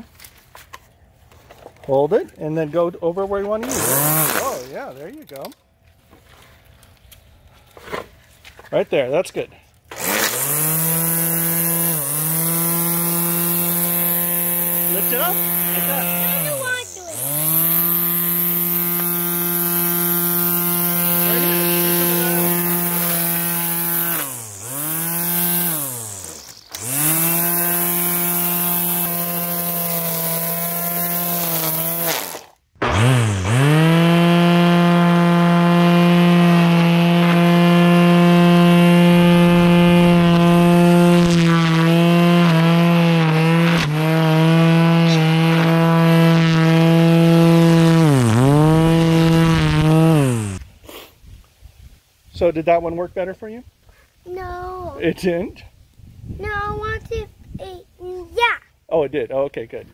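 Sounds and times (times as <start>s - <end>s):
electric string trimmer whining: 3.5s - 5.5s, 9.9s - 50.7s.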